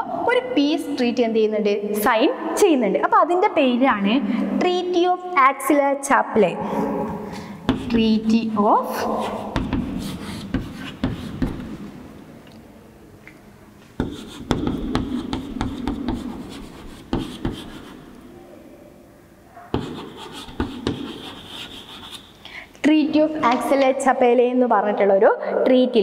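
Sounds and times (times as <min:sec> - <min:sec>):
chalk tapping and scratching: 0:07.7 - 0:08.2, 0:09.0 - 0:11.8, 0:14.0 - 0:18.1, 0:19.7 - 0:22.4.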